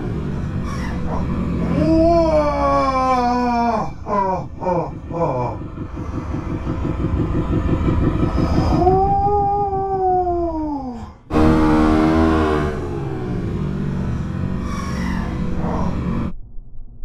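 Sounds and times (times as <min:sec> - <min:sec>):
dirt bike engine idling: 0:00.0 - 0:10.6
long wail: 0:01.2 - 0:05.6, 0:08.2 - 0:13.9
dirt bike passing by: 0:11.3 - 0:14.6.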